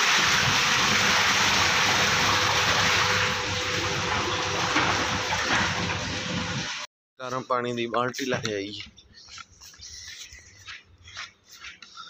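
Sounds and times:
water splashing across tiled floor: 0:00.0 - 0:06.9.

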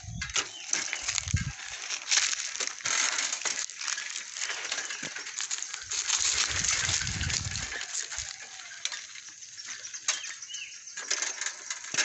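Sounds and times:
footsteps crunching on dry leaves: 0:00.0 - 0:11.3.

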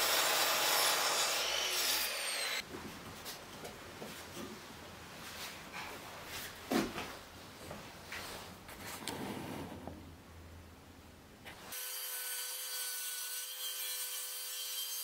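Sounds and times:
miter saw cutting wood: 0:00.0 - 0:02.6.

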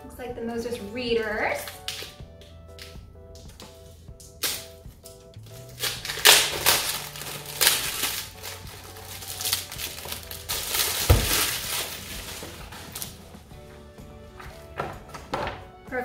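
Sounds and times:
plastic bag crinkling: 0:05.4 - 0:13.2.

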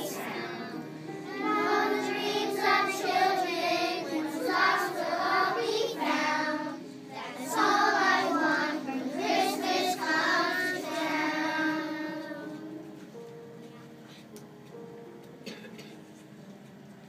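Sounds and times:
children singing: 0:00.0 - 0:12.6.

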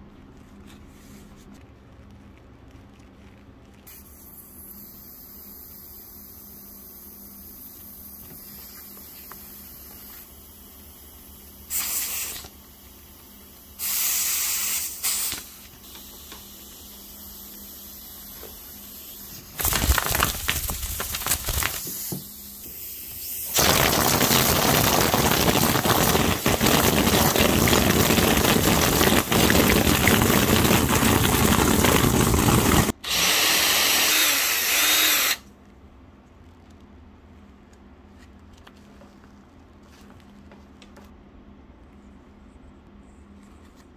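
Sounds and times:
compressed air hissing: 0:03.9 - 0:19.5.

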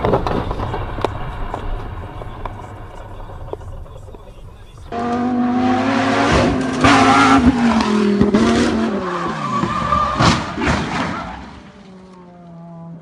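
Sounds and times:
tyres skidding: 0:00.0 - 0:13.0
car engine revving past: 0:04.9 - 0:09.3.

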